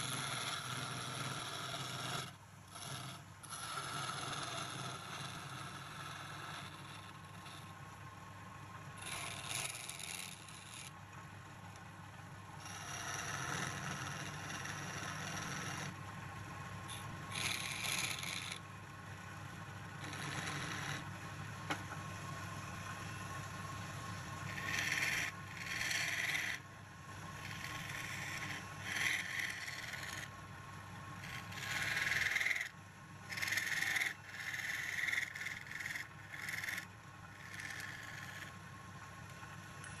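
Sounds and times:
chisel cutting spinning wood: 0:00.0 - 0:08.0, 0:09.0 - 0:11.0, 0:12.6 - 0:21.4, 0:23.2 - 0:26.6, 0:27.2 - 0:32.7, 0:33.3 - 0:38.7
lathe motor humming: 0:27.3 - 0:32.7.

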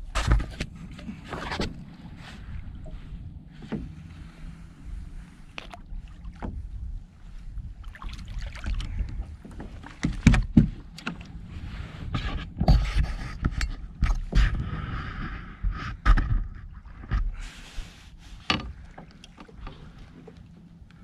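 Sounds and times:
water splashing: 0:07.8 - 0:10.4
fish thumping against kayak hull: 0:09.6 - 0:11.2.

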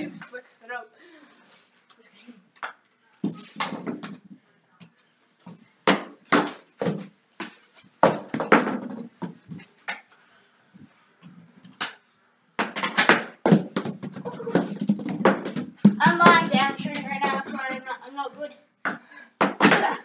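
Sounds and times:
hockey ball knocks and thuds: 0:03.2 - 0:04.3, 0:05.5 - 0:09.6, 0:12.6 - 0:17.1.

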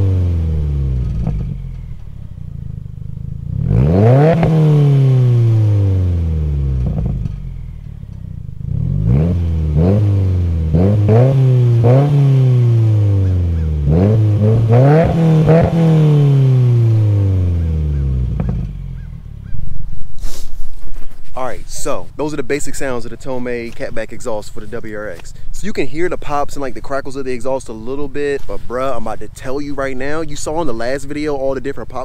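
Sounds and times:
car engine revving: 0:00.0 - 0:20.0
exhaust pops and crackles: 0:00.0 - 0:32.0.

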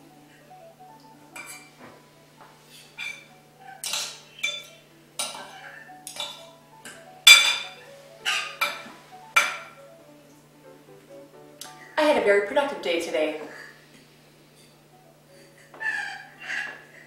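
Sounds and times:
cutlery scraping on ceramic plate: 0:01.4 - 0:01.7, 0:02.7 - 0:06.5, 0:14.6 - 0:14.8.

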